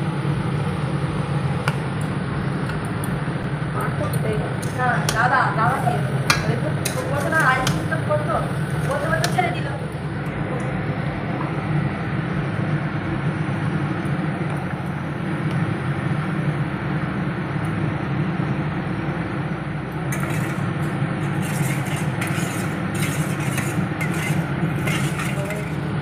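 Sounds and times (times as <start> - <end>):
spatula scraping steel bowl: 4.6 - 8.0, 8.6 - 9.6, 20.1 - 26.0.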